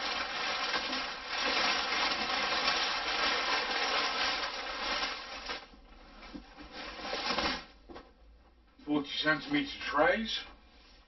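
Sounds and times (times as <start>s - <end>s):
packing paper rustling: 0.0s - 7.8s.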